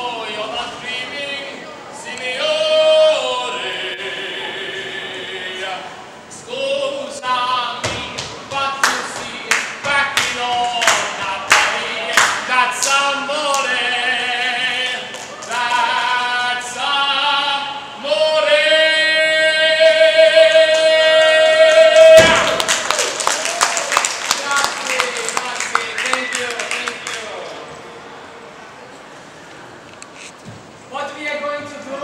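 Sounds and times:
man singing unaccompanied: 0.0s - 22.6s.

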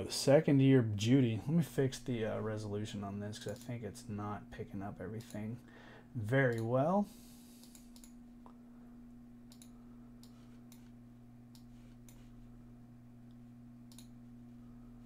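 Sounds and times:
steady low hum: 0.0s - 15.0s
computer mouse clicks: 7.6s - 8.2s, 9.5s - 10.9s, 11.5s - 12.3s, 13.9s - 14.2s.

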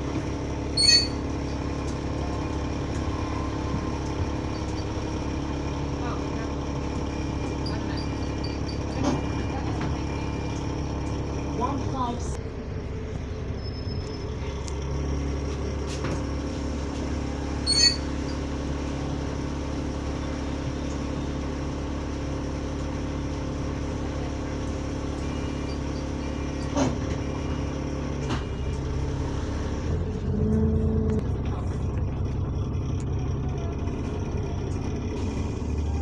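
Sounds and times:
bus diesel engine droning: 0.0s - 36.0s
short squeak: 0.7s - 1.6s, 7.4s - 9.5s, 13.6s - 14.5s, 17.6s - 18.5s, 25.2s - 27.6s.

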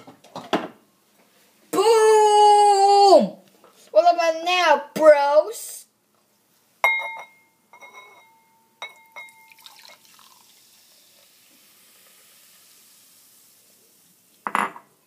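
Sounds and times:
ceramic bowl clinking: 6.8s - 9.9s, 14.4s - 14.9s
soda fizzing: 9.3s - 14.4s.

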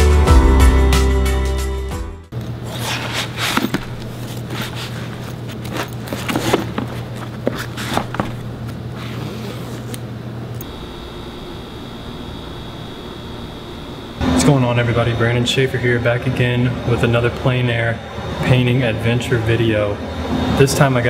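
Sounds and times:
backpack rustling and scraping: 2.6s - 10.0s.

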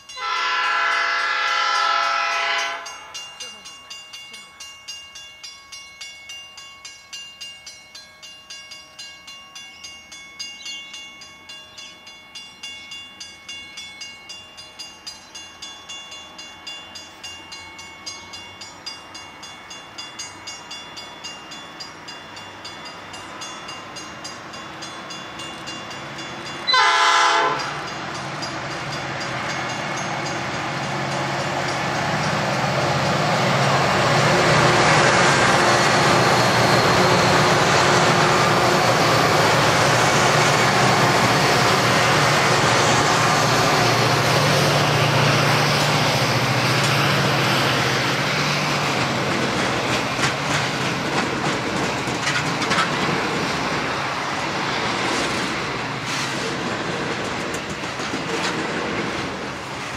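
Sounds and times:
train horn blast: 0.2s - 3.1s, 26.7s - 27.8s
locomotive engines rumbling: 16.2s - 59.9s.

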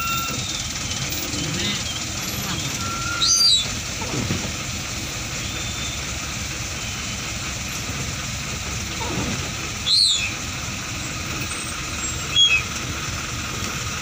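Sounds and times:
wiper squeaking on windscreen: 0.0s - 4.4s, 9.0s - 10.4s, 11.6s - 12.7s
vehicle hum: 0.0s - 14.0s.

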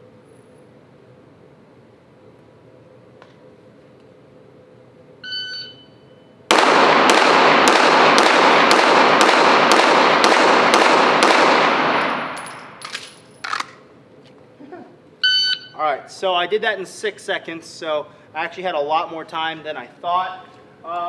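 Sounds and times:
shot timer beep: 5.2s - 6.3s, 15.2s - 15.8s
rapid pistol shots with echo: 6.5s - 12.8s.

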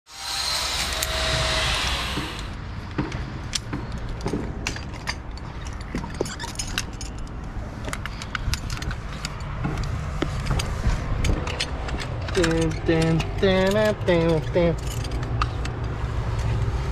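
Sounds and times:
distant street traffic rumble: 0.5s - 16.9s
metal gear clinking: 10.4s - 16.0s.

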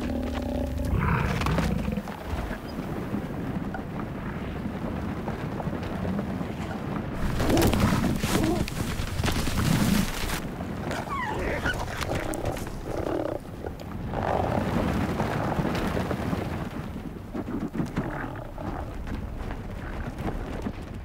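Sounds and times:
animals growling and calling: 0.0s - 2.7s, 7.2s - 14.7s, 17.8s - 19.2s
low rumbling of charging herd: 0.0s - 21.0s.

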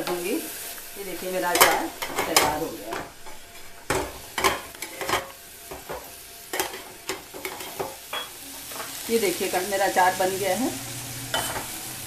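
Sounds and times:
metal spatula scraping a pan: 0.0s - 9.0s, 11.3s - 11.8s
faint sizzle: 0.0s - 12.0s.

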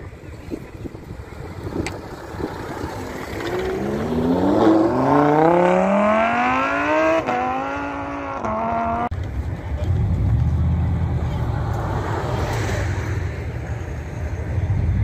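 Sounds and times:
car engine accelerating hard: 2.1s - 9.1s.

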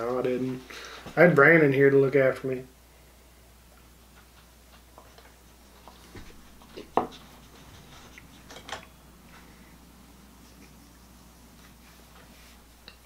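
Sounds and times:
faint taps and rustles: 4.1s - 9.5s.

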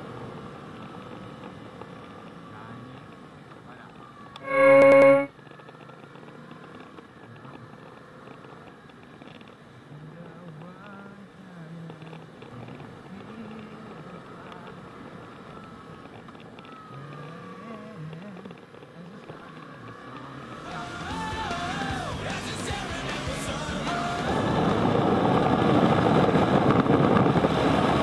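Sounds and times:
wind noise: 24.3s - 28.0s.

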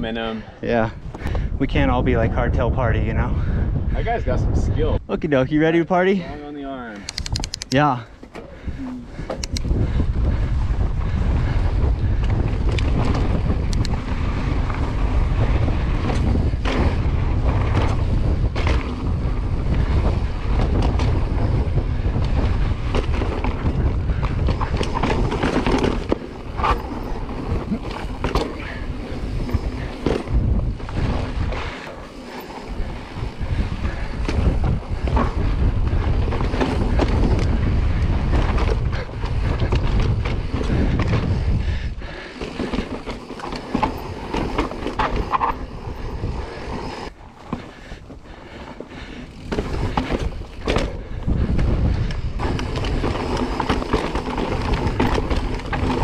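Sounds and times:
wind buffeting microphone: 0.0s - 56.0s
bike knocks and rattles on rock: 11.8s - 31.6s, 33.2s - 41.5s, 49.3s - 56.0s.

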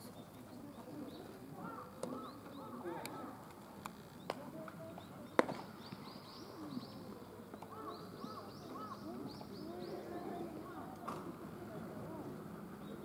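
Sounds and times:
birds chirping: 0.0s - 13.0s
faint distant voices: 0.0s - 13.0s.

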